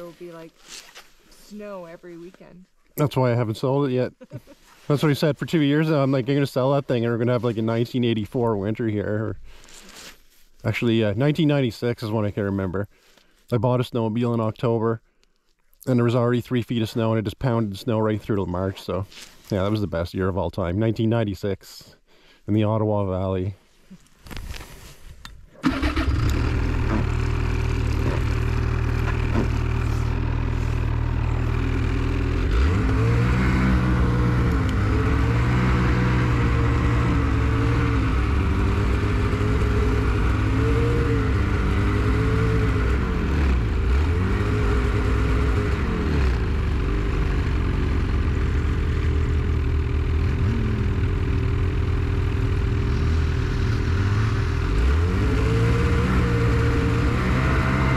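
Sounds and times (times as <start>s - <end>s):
snowmobile engine running: 25.6s - 57.9s.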